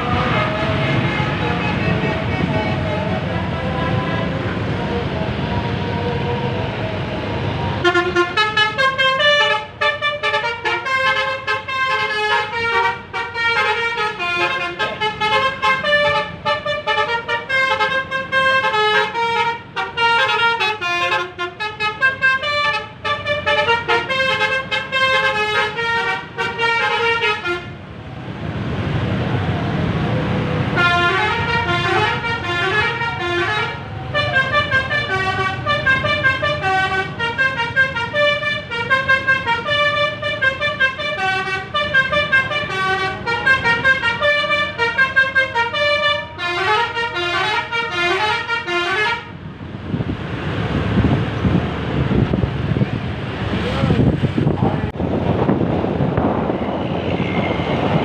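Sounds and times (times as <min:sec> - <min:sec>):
bus horn playing tune: 0:00.0 - 0:04.5, 0:07.8 - 0:27.8, 0:30.7 - 0:49.4.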